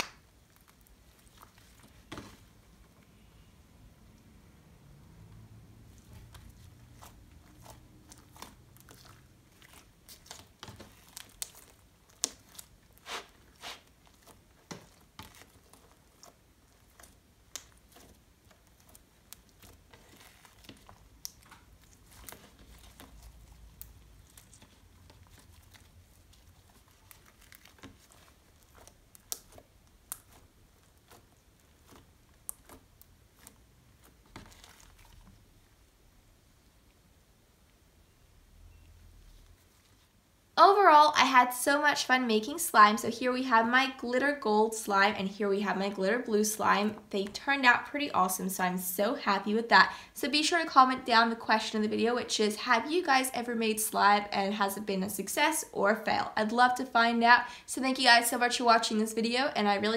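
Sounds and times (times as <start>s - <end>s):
hands squishing slime: 0.0s - 2.9s, 5.7s - 36.0s.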